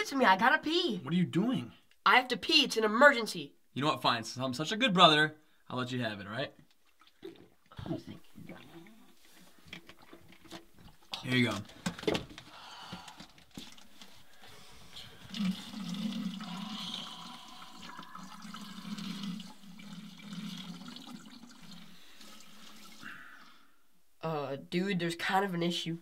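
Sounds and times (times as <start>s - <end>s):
urine running into plastic bottle: 6.6s - 23.1s.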